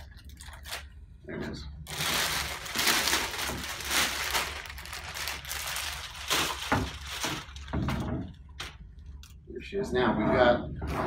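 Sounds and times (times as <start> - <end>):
plastic bag crinkling: 0.0 - 1.0, 1.8 - 9.4.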